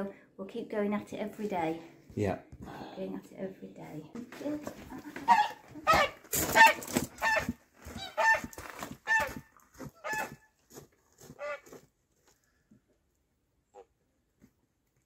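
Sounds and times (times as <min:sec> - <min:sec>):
goose honking: 0:05.2 - 0:09.4, 0:10.0 - 0:10.4.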